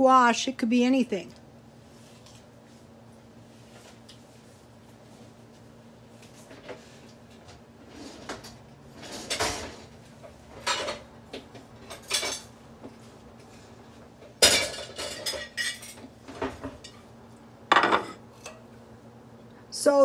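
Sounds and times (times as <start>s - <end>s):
kitchenware clinks and knocks: 14.4s - 16.9s, 17.7s - 18.2s.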